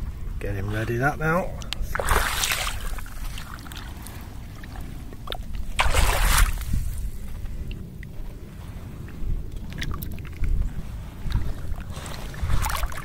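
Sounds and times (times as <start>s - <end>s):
steady low rumble: 0.0s - 13.0s
water splashing: 0.6s - 7.4s, 9.6s - 13.0s
light drips and clicks: 1.6s - 1.9s, 9.0s - 10.6s.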